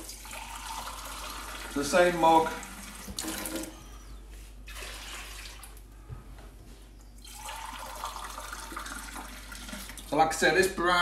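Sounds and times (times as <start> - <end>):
tap water running into mug: 7.2 - 10.1.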